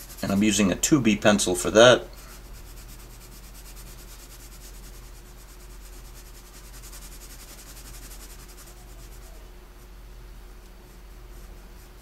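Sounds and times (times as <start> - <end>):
pencil scratching on paper: 0.0 - 0.8, 2.3 - 9.5
low electrical hum: 0.0 - 12.0.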